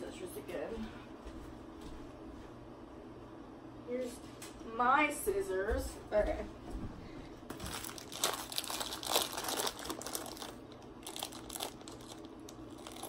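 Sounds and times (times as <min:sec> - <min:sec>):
plastic bag crinkling: 0:07.5 - 0:13.0.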